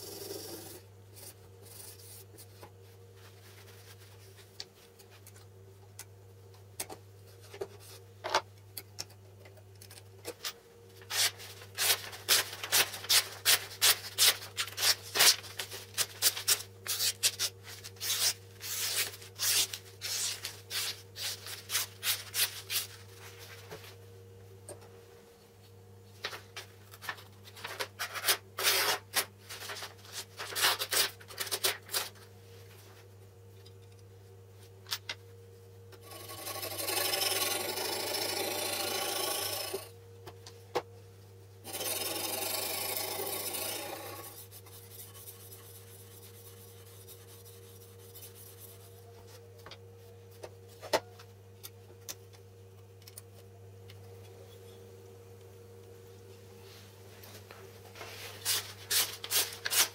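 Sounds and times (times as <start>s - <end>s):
paper handling: 11.0s - 18.4s, 26.2s - 32.3s
knife slicing paper: 58.4s - 59.9s.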